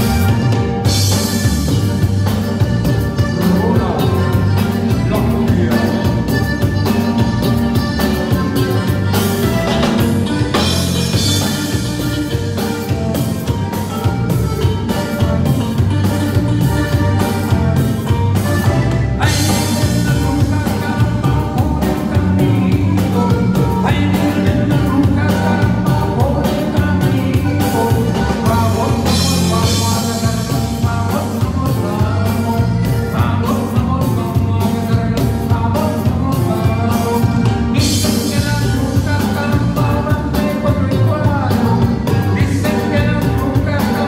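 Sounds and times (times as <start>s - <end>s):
steady beat: 0.0s - 33.4s
accordion: 0.0s - 44.0s
bajo sexto guitar: 0.0s - 44.0s.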